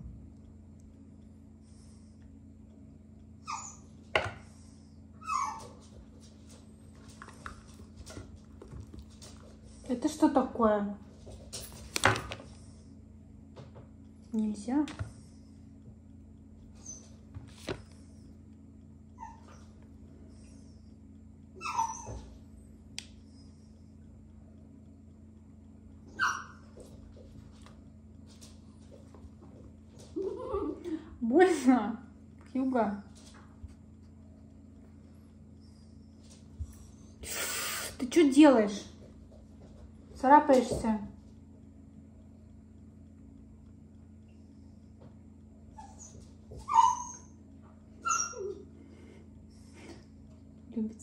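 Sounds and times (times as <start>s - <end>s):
puppy whining: 3.4s - 4.0s, 5.2s - 5.9s, 16.7s - 17.3s, 19.1s - 19.8s, 21.6s - 22.5s, 26.1s - 26.8s, 45.7s - 48.8s.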